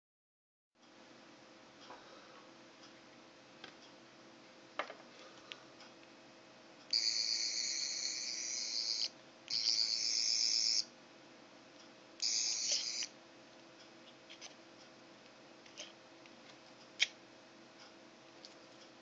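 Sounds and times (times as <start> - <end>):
toy high-pitched warbling electronic buzz: 6.9 - 10.9, 12.2 - 13.1.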